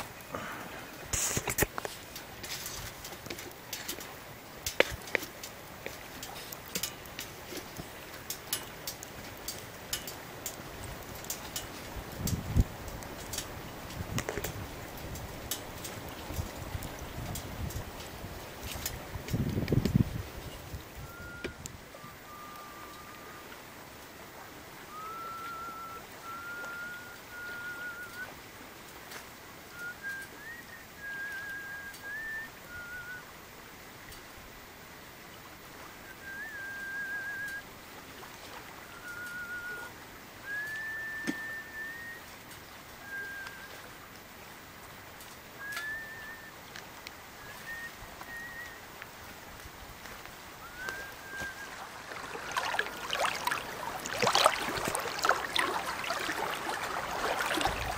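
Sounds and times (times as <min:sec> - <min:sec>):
faint clicks and knocks: 0:01.0 - 0:20.8
person whistling a slow tune: 0:21.0 - 0:23.5, 0:24.9 - 0:28.3, 0:29.7 - 0:33.3, 0:36.0 - 0:37.7, 0:38.8 - 0:42.3, 0:43.0 - 0:43.9, 0:45.6 - 0:46.6, 0:47.4 - 0:48.8, 0:50.6 - 0:53.3.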